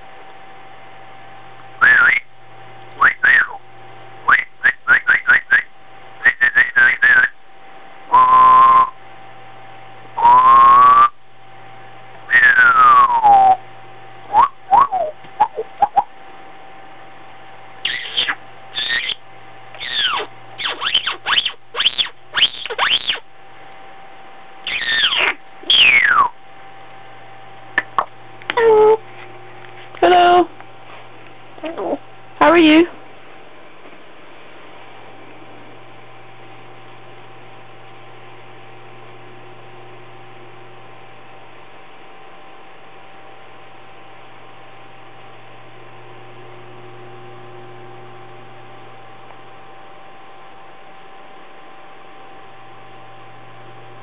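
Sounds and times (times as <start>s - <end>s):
low electrical hum: 0.0s - 54.0s
thin steady whine: 0.0s - 54.0s
parrot whistling: 1.8s - 2.2s, 3.0s - 3.6s, 4.3s - 7.4s, 8.1s - 8.9s, 10.2s - 11.2s, 12.3s - 13.6s, 14.3s - 16.1s, 17.8s - 19.2s, 19.8s - 23.2s, 24.7s - 26.4s.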